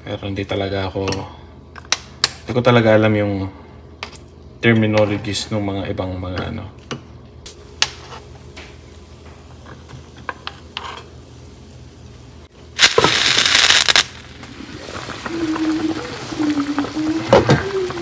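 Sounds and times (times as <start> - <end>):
loud hiss: 12.8 - 16.7
broth bubbling at a boil: 12.8 - 18.0.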